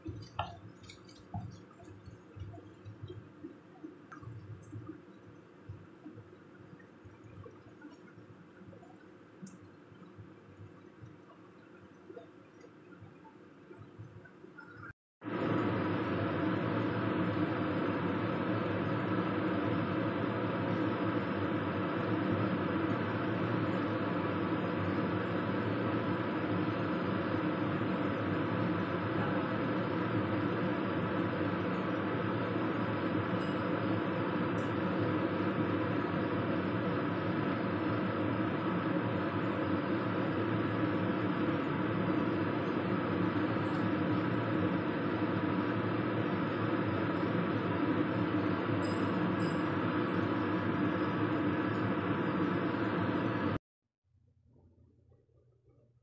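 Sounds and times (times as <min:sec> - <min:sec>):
mechanical hum with rushing: 0:00.0 - 0:53.6.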